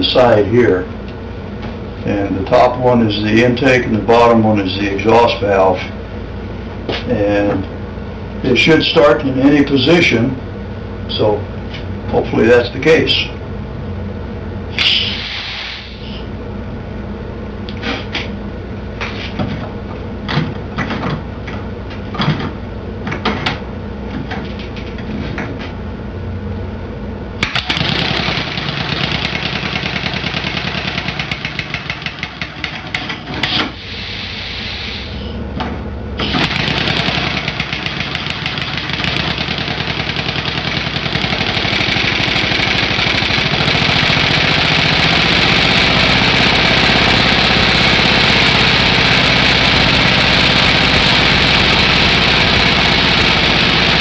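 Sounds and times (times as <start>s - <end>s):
air engine exhaust chatter: 36.2s - 54.0s.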